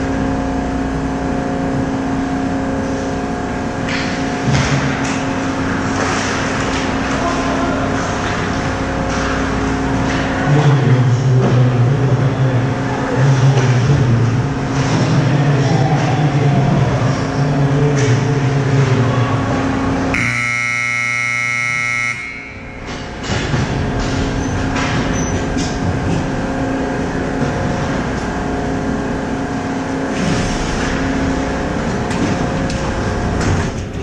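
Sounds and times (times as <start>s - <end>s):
arena noise: 3.9s - 34.0s
scoreboard horn buzzing: 20.1s - 23.1s.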